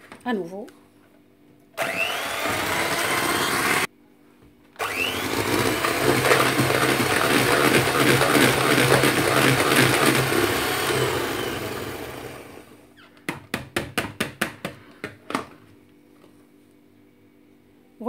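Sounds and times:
electric hand mixer whipping cream: 0:01.8 - 0:03.9, 0:04.8 - 0:12.7.

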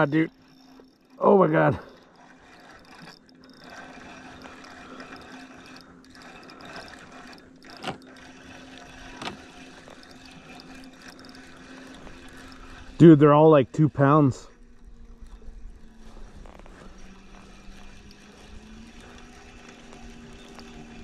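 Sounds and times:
fishing reel cranking: 0:00.0 - 0:21.0
water lapping against boat: 0:00.0 - 0:21.0.

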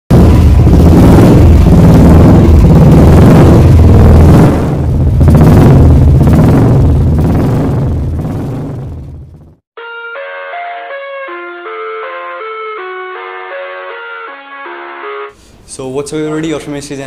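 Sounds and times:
motorcycle engine revving: 0:00.1 - 0:09.6.

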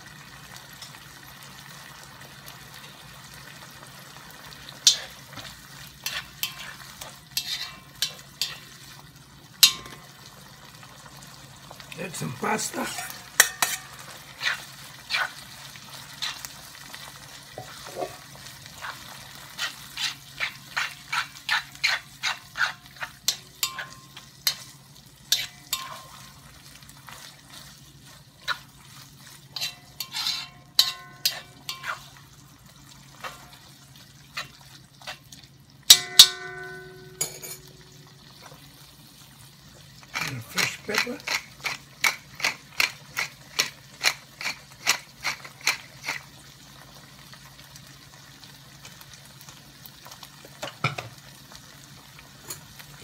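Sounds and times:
light frying sizzle: 0:00.0 - 0:53.0
utensil scraping iron wok: 0:04.8 - 0:09.0, 0:09.6 - 0:10.1, 0:12.0 - 0:26.4, 0:28.4 - 0:32.2, 0:33.2 - 0:33.6, 0:40.1 - 0:46.3
ringing metallic clank: 0:35.9 - 0:37.7.

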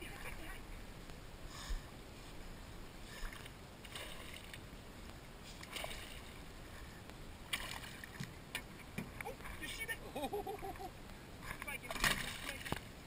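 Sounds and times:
water lapping against boat: 0:03.0 - 0:04.8, 0:05.4 - 0:10.0, 0:10.6 - 0:13.0.

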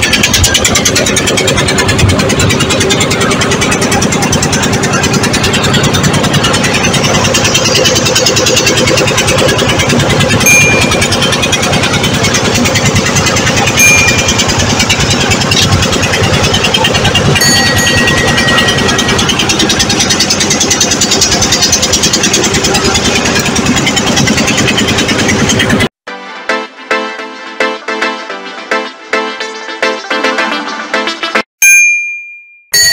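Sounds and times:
boat engine running: 0:00.0 - 0:26.0
music: 0:26.1 - 0:31.5.

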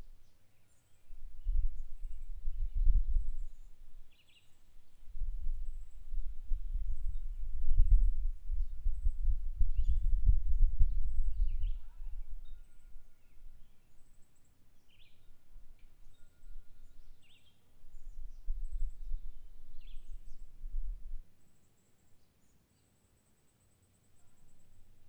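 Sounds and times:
small birds chirping: 0:00.0 - 0:05.1, 0:05.7 - 0:20.6, 0:21.4 - 0:25.0
uneven low rumble: 0:05.0 - 0:13.6.

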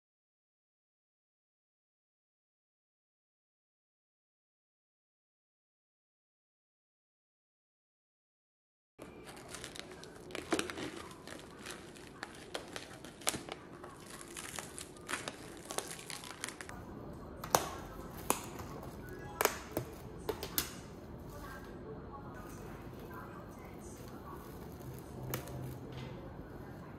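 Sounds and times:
cling film crinkling: 0:09.0 - 0:16.8, 0:22.4 - 0:26.9.

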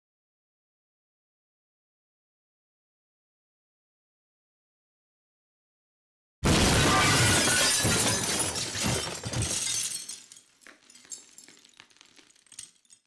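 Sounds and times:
glass shattering crash: 0:06.4 - 0:13.0
glass shards tinkling: 0:07.3 - 0:13.0.

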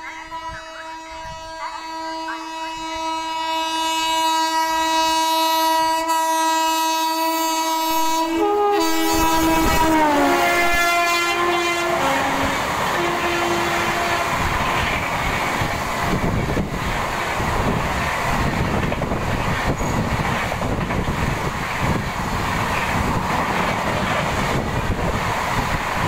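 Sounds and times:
train horn blast: 0:00.0 - 0:15.9
train coaches rushing and rattling: 0:06.7 - 0:26.0.

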